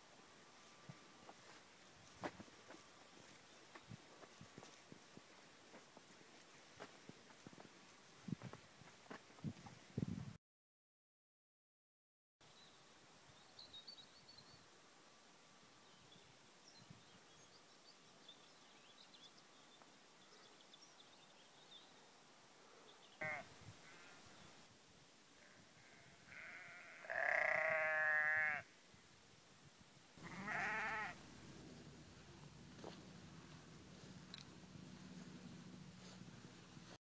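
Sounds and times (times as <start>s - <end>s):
sheep bleating: 23.2s - 24.2s, 25.4s - 28.7s, 30.2s - 31.2s.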